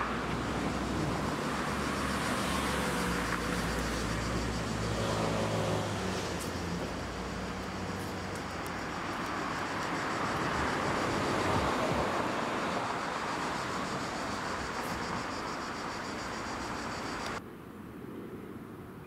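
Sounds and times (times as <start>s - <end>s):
road traffic rumble: 0.0s - 17.4s.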